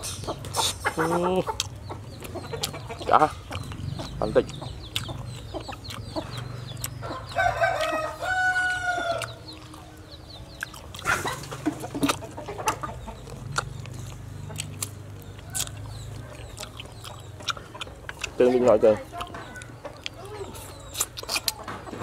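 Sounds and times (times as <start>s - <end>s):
rooster crowing: 7.0s - 9.4s.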